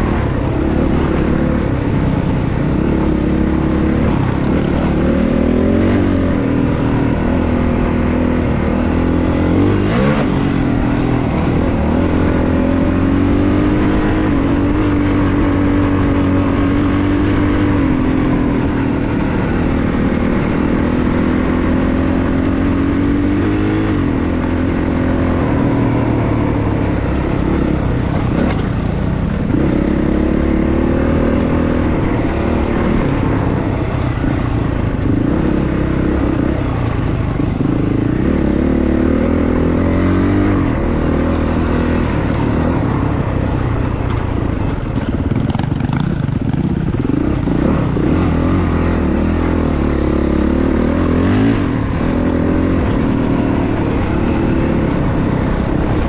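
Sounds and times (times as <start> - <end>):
dirt bike engine revving: 0.0 - 43.1, 45.0 - 56.0.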